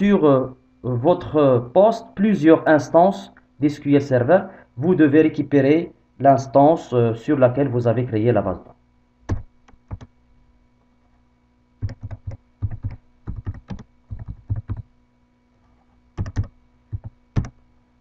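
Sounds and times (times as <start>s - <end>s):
keyboard typing: 9.3s - 10.1s, 11.8s - 14.9s, 16.2s - 17.6s.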